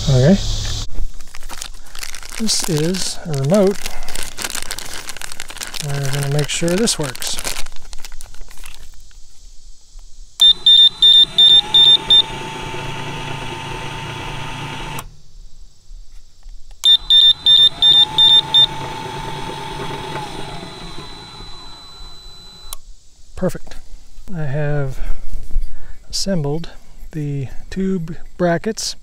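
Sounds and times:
high beeps: 10.4 - 12.4, 16.8 - 18.9
gate motor whining: 10.4 - 15.2, 16.8 - 22.8.

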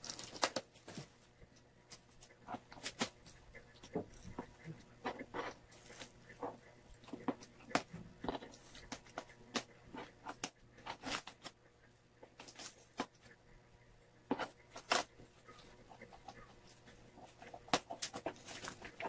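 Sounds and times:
bubble wrap crinkling: 0.0 - 1.2, 17.2 - 19.0.

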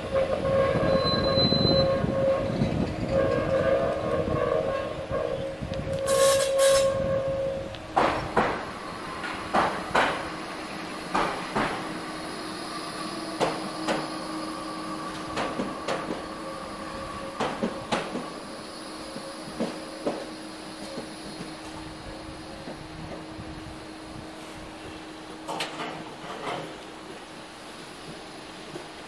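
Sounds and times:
tram wheels knocking over rail joints: 7.9 - 10.4, 11.0 - 12.0, 15.1 - 16.3, 17.3 - 18.4.

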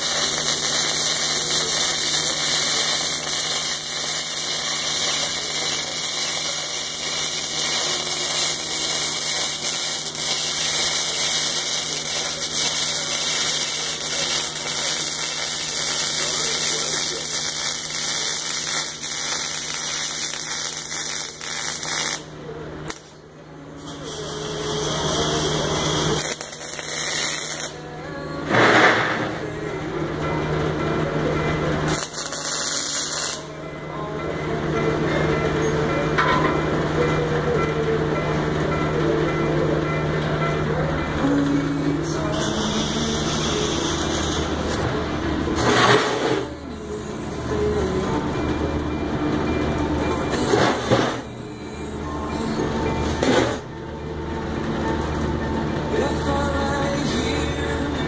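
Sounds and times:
welding arc crackling: 0.0 - 23.2, 23.8 - 27.8, 31.9 - 33.5, 42.3 - 44.8
steady hum: 0.0 - 58.0.

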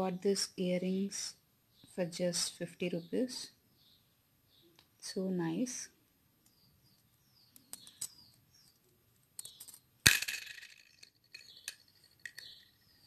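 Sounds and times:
metal earrings clinking on tiles: 7.7 - 8.4, 9.4 - 13.0.

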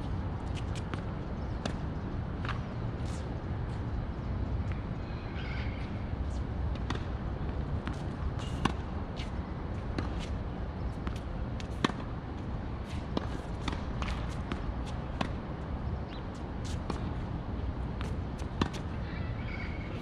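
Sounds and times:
tennis balls bouncing on court: 0.5 - 3.2, 6.7 - 15.7, 16.3 - 18.9.

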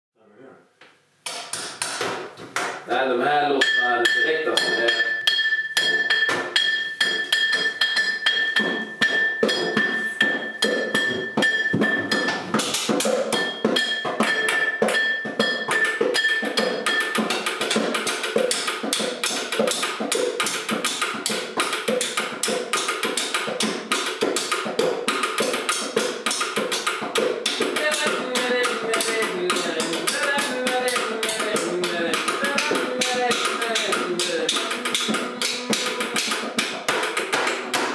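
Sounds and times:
high ringing tone: 3.6 - 12.5
tapping on wood and glass: 3.6 - 18.7.

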